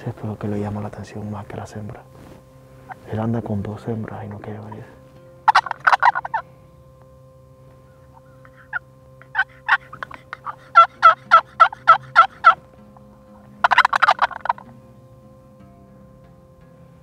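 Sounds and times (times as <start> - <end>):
turkey call clucks: 2.8 - 3.0, 5.4 - 6.5, 7.8 - 14.8
rattling gobble: 5.5 - 6.4, 8.2 - 12.6, 13.6 - 14.7
turkey call yelps: 5.5 - 6.4, 7.8 - 12.6, 13.6 - 14.7.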